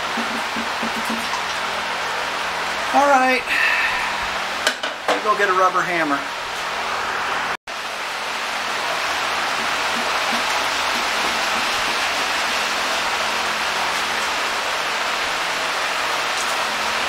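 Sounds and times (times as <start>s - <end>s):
steady rain: 7.7s - 17.0s.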